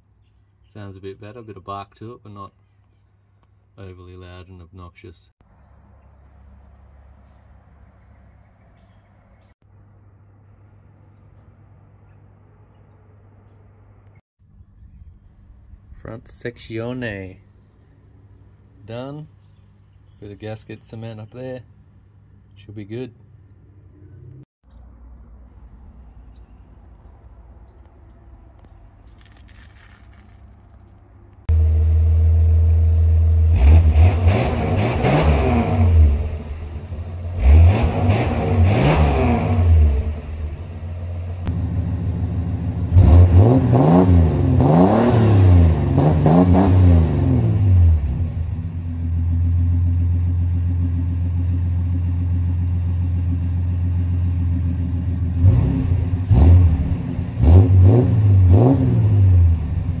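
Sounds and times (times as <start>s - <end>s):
car engine idling and revving: 23.2s - 60.0s.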